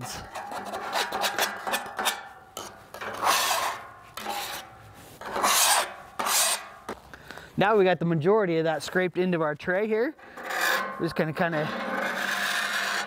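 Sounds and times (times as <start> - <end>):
metal scraper on steel griddle: 0.0 - 6.9, 10.2 - 13.0.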